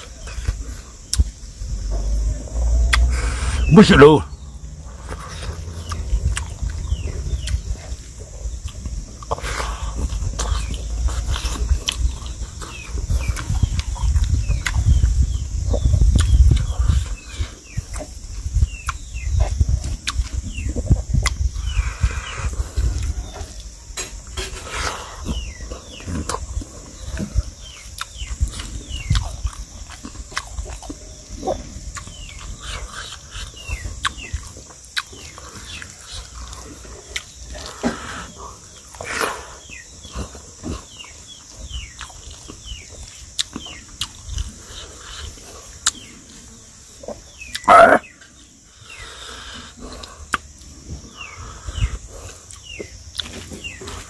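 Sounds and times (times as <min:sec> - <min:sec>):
close-up chewing: 0:04.8 - 0:48.1, 0:48.9 - 0:54.0
wet mouth smacks and clicks: 0:16.1 - 0:16.7, 0:50.3 - 0:50.5.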